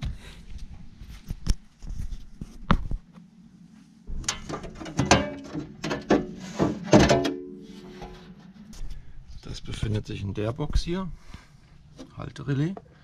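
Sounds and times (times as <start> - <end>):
sheet metal cover clattering: 4.2 - 8.4.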